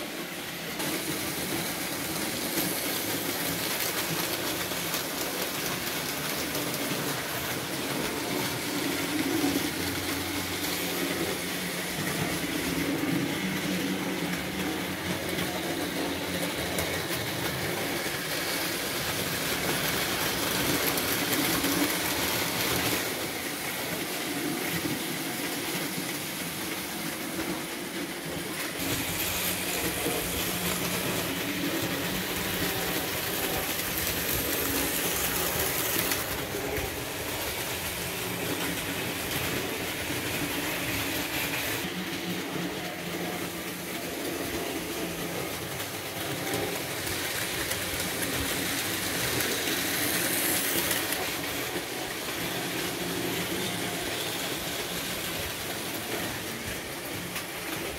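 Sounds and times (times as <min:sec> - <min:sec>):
wheels rolling on metal track: 0:00.0 - 0:57.9
small electric motors: 0:00.7 - 0:57.9.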